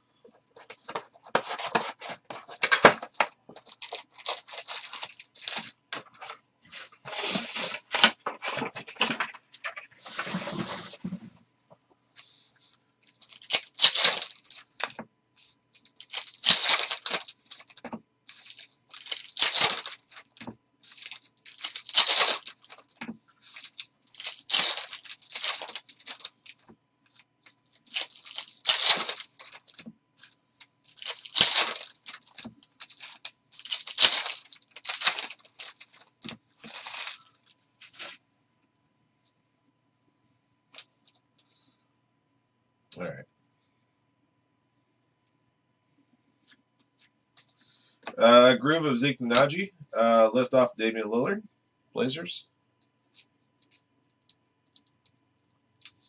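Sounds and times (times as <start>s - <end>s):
card pack wrappers tearing: 0.9s - 5.8s, 13.1s - 15.0s, 15.8s - 38.2s.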